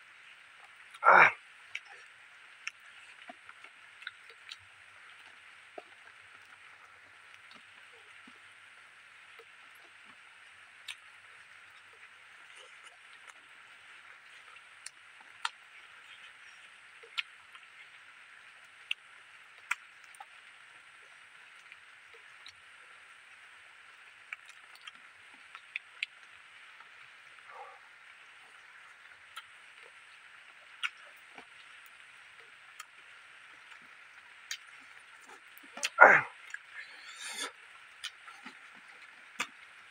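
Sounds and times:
steady high hiss: 25.5 - 39.9
mouth clicks and smacks: 30.8 - 31.6, 34.5 - 38.8.

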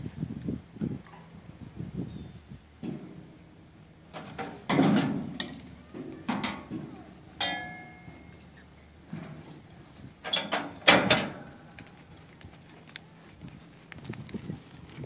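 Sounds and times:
ringing steady tone: 7.4 - 8.5.

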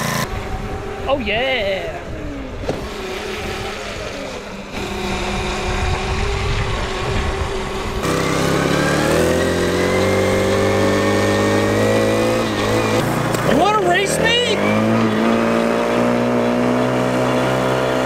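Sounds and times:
small motorbike engine running: 0.0 - 1.1, 2.2 - 18.0.

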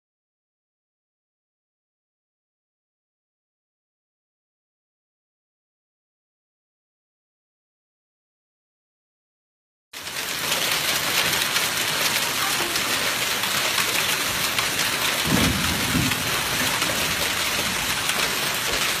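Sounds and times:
heavy rain pelting the ground: 10.0 - 19.0.

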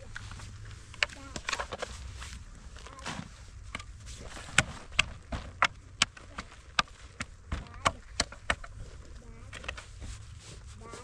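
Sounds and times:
steady low rumble: 0.0 - 11.0
sharp knocks: 3.1 - 8.8.

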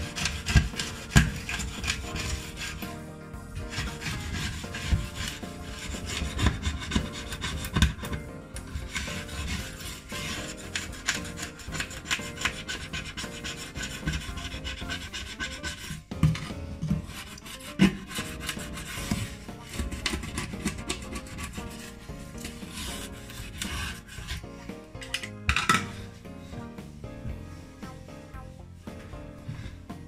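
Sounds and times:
scrubbing on glass hob: 0.0 - 28.0.

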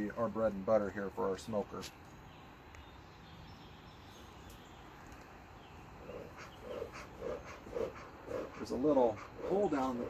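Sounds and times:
bellows puffing air: 6.0 - 10.0.

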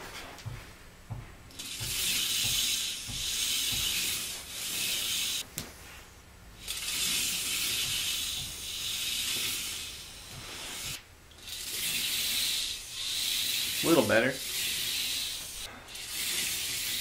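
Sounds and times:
toy coaster car rolling on track: 6.6 - 10.0, 10.6 - 17.0.

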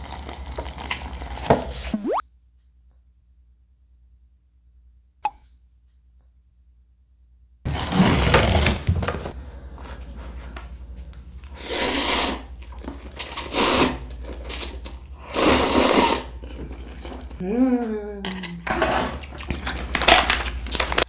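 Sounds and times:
slurping and chewing noodles: 11.4 - 17.4.

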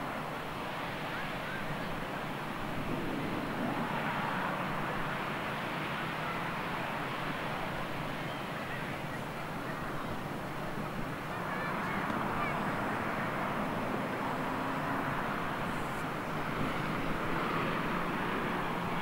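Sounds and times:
faint distant voices: 0.0 - 19.0
wind and water noise: 0.0 - 19.0.

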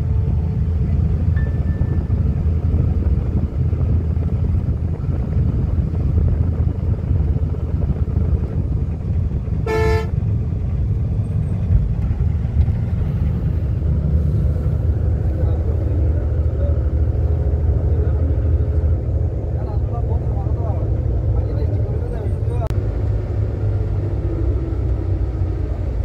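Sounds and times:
bus engine and road noise: 0.0 - 26.0
vehicle horn: 9.6 - 10.2.

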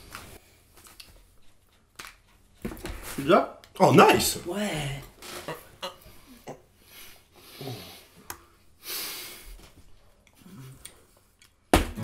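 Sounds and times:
person breathing: 6.1 - 11.2.

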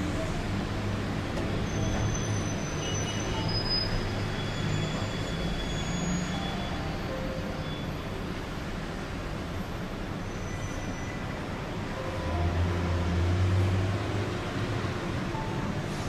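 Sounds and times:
faint high squeals: 1.6 - 8.2, 10.3 - 11.3.

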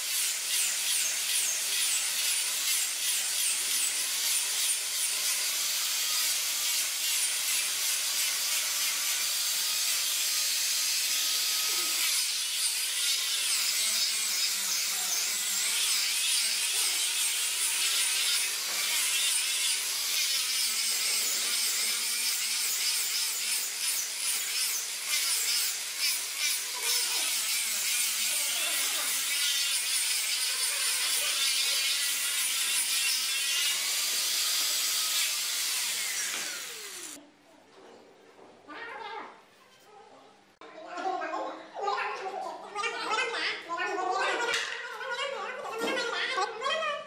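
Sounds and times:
rotary tool whining: 0.1 - 37.2.

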